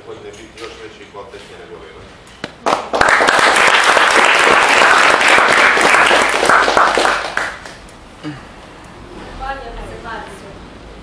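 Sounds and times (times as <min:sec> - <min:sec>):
audience applauding: 0:02.6 - 0:07.9.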